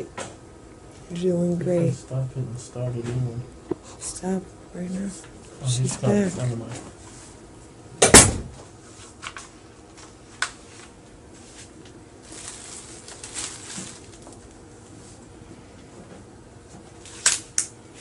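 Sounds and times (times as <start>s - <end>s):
sharp knock: 8.0s - 8.5s
soft rustling: 10.6s - 15.2s.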